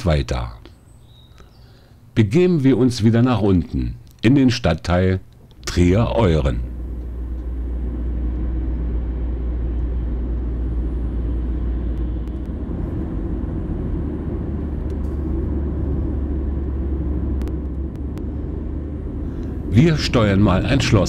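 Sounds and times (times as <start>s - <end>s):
car engine and road noise: 5.3s - 21.0s.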